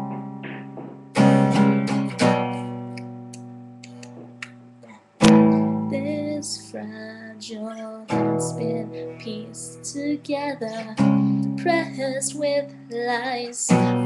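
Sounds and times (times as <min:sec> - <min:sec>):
acoustic guitar strummed chords: 0:00.0 - 0:06.8, 0:08.1 - 0:14.0
woman singing: 0:05.7 - 0:14.0.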